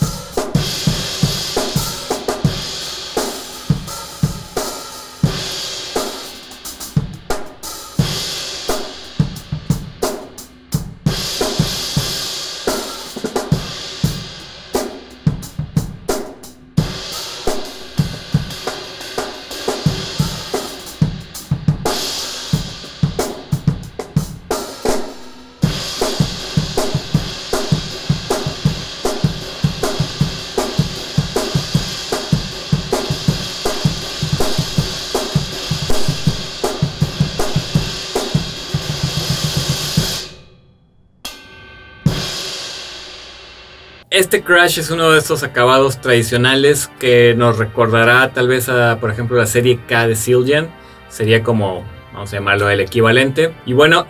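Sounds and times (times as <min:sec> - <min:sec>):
drum kit playing: 0:00.0 - 0:40.6, 0:41.2 - 0:54.0
crash cymbal struck: 0:25.0 - 0:44.1.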